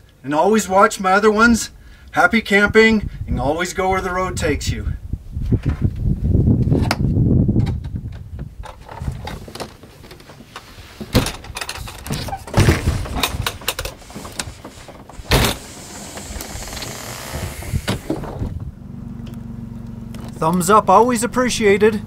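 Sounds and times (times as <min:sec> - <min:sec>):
camper panels rumbling: 0:05.6 - 0:18.9
clicks and clunks of panels: 0:07.6 - 0:16.9.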